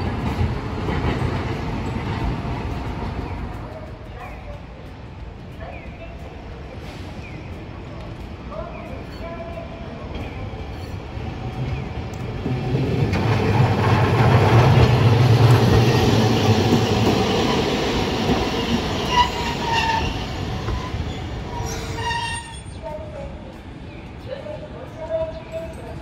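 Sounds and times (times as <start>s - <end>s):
streetcar running on rails: 0.0s - 26.0s
streetcar wheel squeals: 18.5s - 22.8s.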